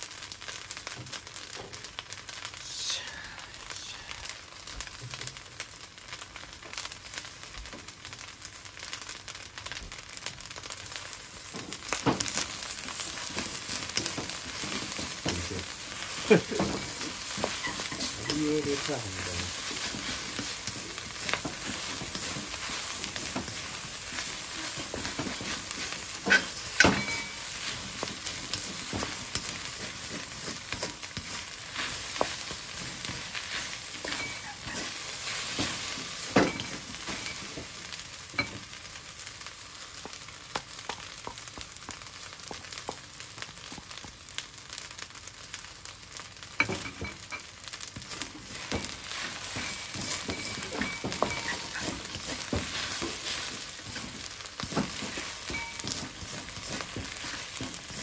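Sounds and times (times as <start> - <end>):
rice sizzling in a wok: 0.0 - 58.0
wooden spatula scraping wok: 10.6 - 38.8, 46.6 - 58.0.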